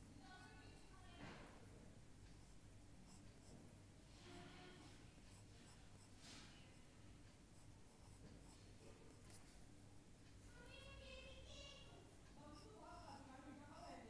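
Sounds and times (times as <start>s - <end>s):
low electrical hum: 0.0s - 14.0s
drawing tool scratching on paper: 2.3s - 3.6s, 4.2s - 6.8s, 7.5s - 9.6s, 11.9s - 14.0s.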